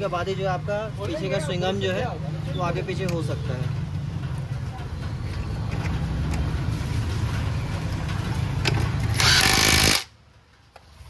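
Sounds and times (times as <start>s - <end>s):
impact wrench hammering: 8.7s - 10.2s.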